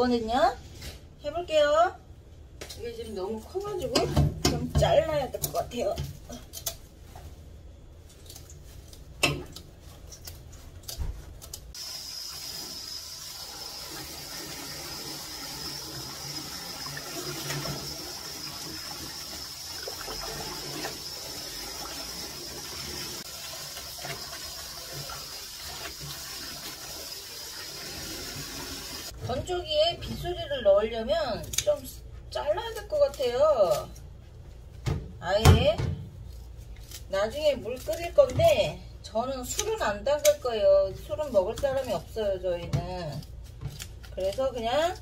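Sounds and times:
faucet running into metal bowl: 0:11.8 - 0:29.1.

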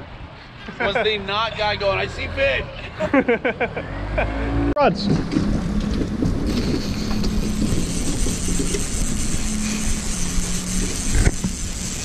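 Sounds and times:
fishing reels clicking: 0:06.5 - 0:12.0
outboard motor running: 0:06.5 - 0:12.0.

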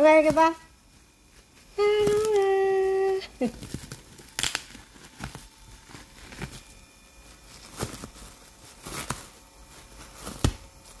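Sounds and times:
cellophane crinkling: 0:00.0 - 0:11.0.

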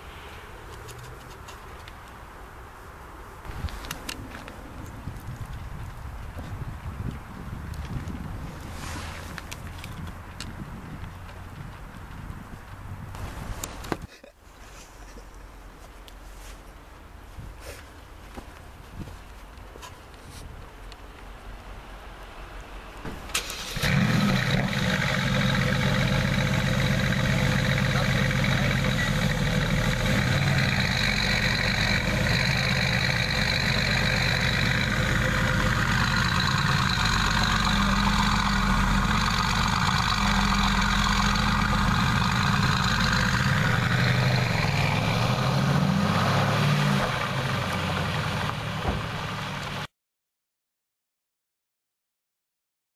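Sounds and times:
car engine idling: 0:23.1 - 0:45.6
car engine starting: 0:23.1 - 0:49.9.

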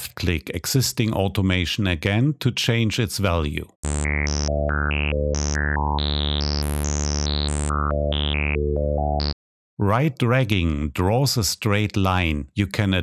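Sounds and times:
synthesizer low note with stepped filter: 0:03.8 - 0:09.4.

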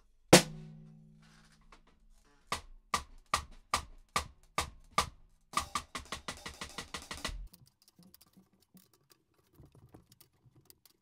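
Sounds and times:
detuned snare drum hits: 0:00.4 - 0:01.2, 0:04.6 - 0:07.5.

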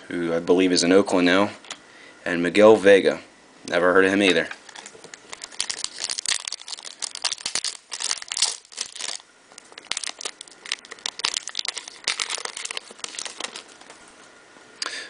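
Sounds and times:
foil wrapper crinkling: 0:04.6 - 0:14.0.

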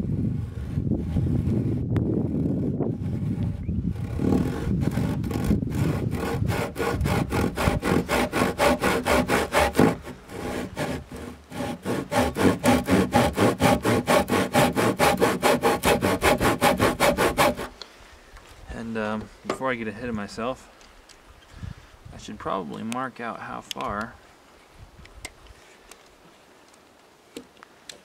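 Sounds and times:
handsaw cutting timber: 0:02.9 - 0:17.8.

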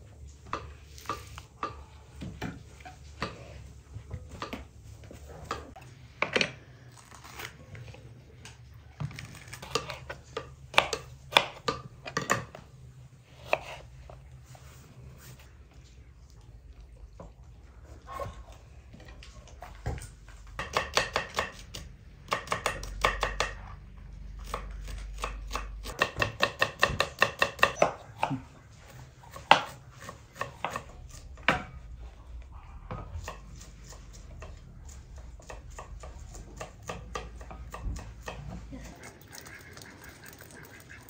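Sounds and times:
knife chopping on cutting board: 0:24.4 - 0:28.5, 0:29.3 - 0:31.8.

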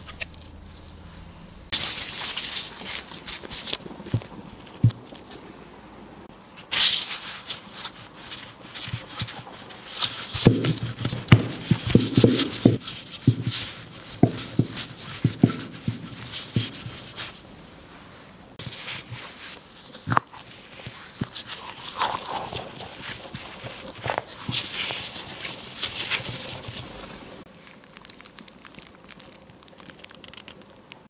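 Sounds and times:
plastic gloves crinkling: 0:01.7 - 0:05.5, 0:06.3 - 0:31.0
rolling pin knocking on dough: 0:10.4 - 0:17.0.

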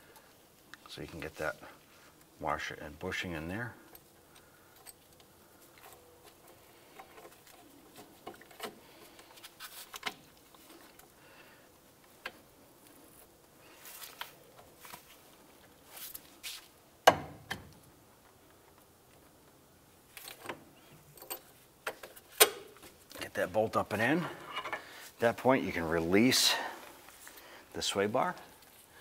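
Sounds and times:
tools clicking and scraping: 0:03.8 - 0:11.1, 0:20.1 - 0:23.3.

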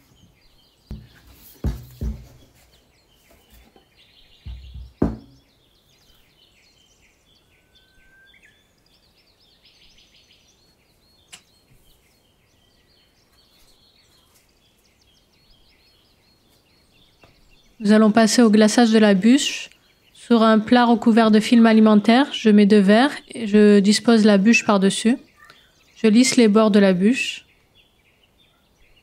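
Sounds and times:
small birds chirping: 0:00.0 - 0:29.0
sharp knocks and thumps: 0:00.9 - 0:05.5.

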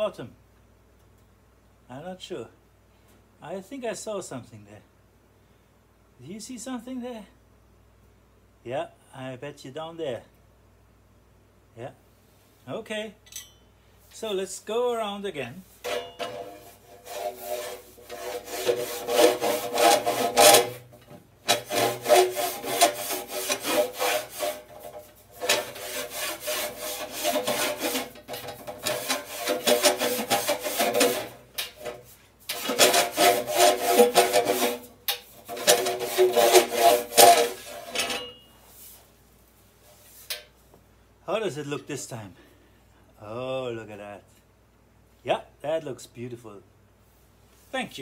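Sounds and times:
pitched metallic ring: 0:13.2 - 0:13.8, 0:15.9 - 0:16.3, 0:38.0 - 0:38.7
rasp scraping metal pipe: 0:15.7 - 0:39.0.

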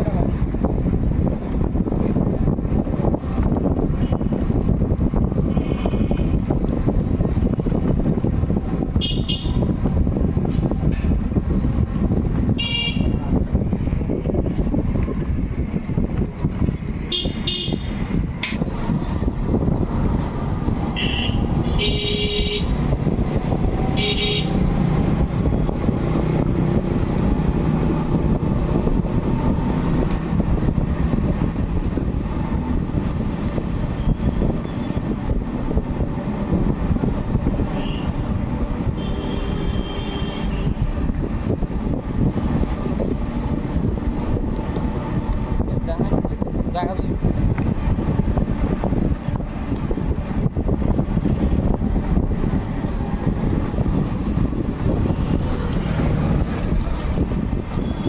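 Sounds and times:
road traffic rumble: 0:00.0 - 0:58.0
vehicle horn toots: 0:09.0 - 0:09.7, 0:12.6 - 0:13.2, 0:17.1 - 0:18.0, 0:21.0 - 0:22.7, 0:24.0 - 0:24.6, 0:37.8 - 0:38.1, 0:39.0 - 0:40.8.

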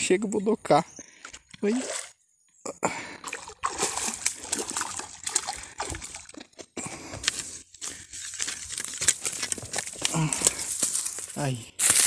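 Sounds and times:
fish splashing in water: 0:03.2 - 0:06.5.

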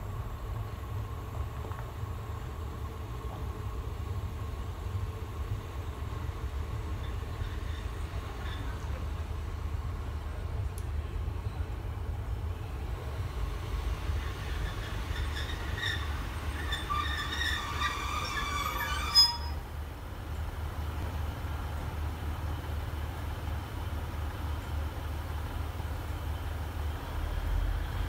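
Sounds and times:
train brakes squealing: 0:06.9 - 0:09.0, 0:13.4 - 0:19.7.

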